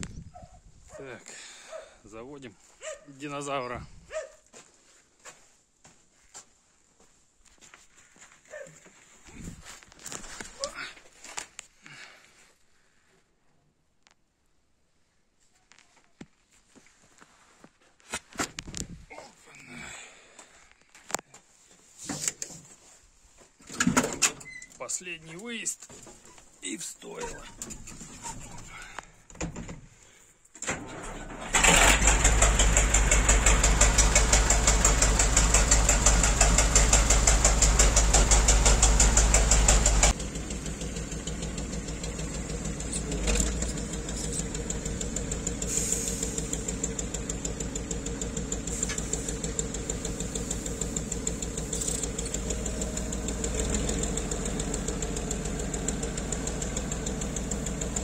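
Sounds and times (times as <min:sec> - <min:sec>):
diesel truck engine running: 0:31.4 - 0:58.0.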